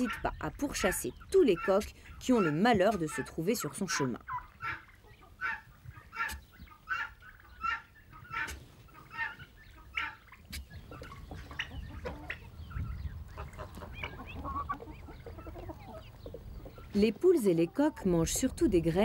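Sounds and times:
chickens calling: 0.0s - 19.0s
chickens clucking: 0.0s - 19.0s
low rumble: 18.0s - 19.0s.

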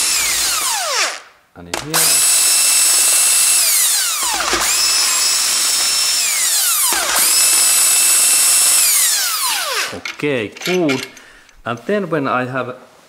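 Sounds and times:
impact driver motor whine: 0.0s - 10.0s.

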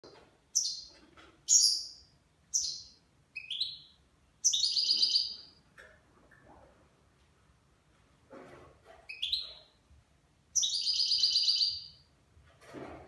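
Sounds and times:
finch singing: 0.6s - 5.5s, 9.1s - 9.7s, 10.6s - 12.0s.

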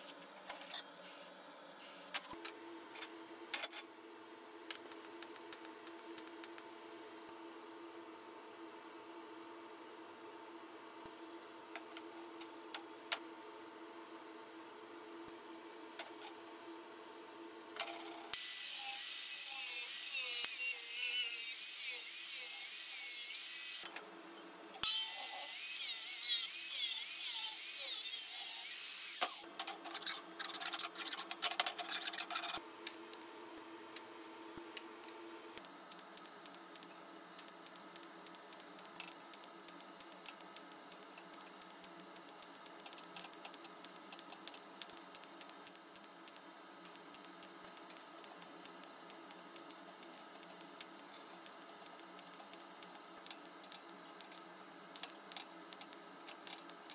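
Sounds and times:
angle grinder cutting sheet steel: 18.4s - 23.8s, 24.9s - 29.4s
welding arc crackling: 18.4s - 23.8s, 35.6s - 56.9s.

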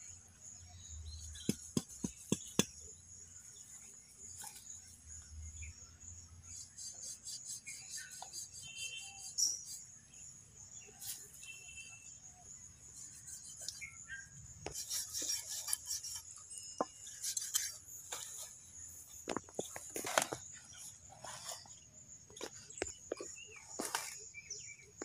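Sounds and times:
knife cutting and scraping flesh: 14.7s - 16.3s.

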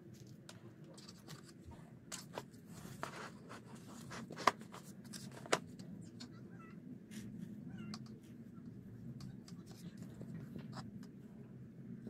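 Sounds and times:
plastic pots scraping and rustling: 0.1s - 5.8s.

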